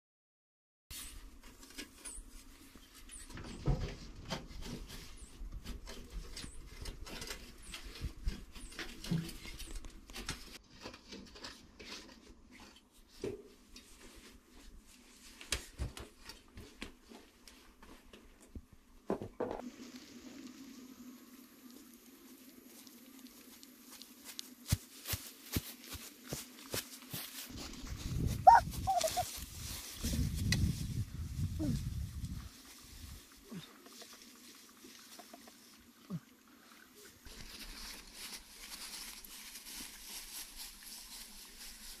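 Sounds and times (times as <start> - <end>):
hand tools scraping earth: 22.6 - 35.9.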